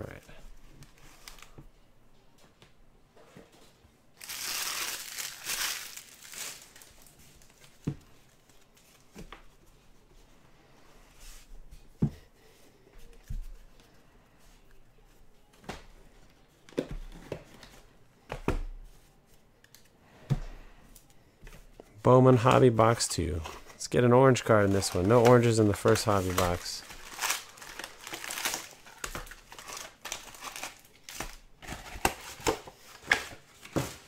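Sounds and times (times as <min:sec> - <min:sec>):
packaging crinkling and tearing: 0:04.2 - 0:07.6, 0:24.3 - 0:34.0.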